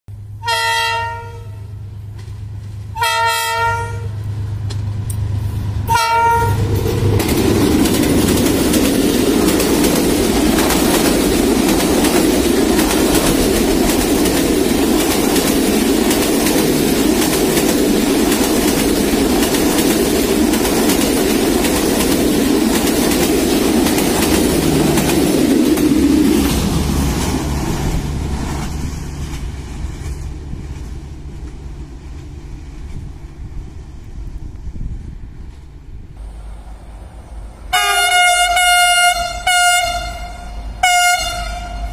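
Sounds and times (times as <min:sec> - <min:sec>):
train rumble: 0:00.1 - 0:41.9
locomotive horn blasts: 0:00.4 - 0:01.8, 0:03.0 - 0:04.2, 0:05.9 - 0:06.6, 0:37.7 - 0:41.9
wheel clatter on rails: 0:06.6 - 0:33.0.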